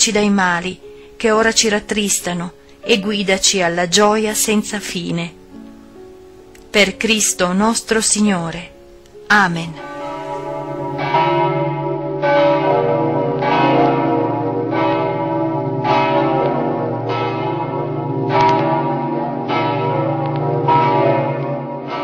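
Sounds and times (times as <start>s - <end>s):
church bells pealing: 9.5s - 22.0s.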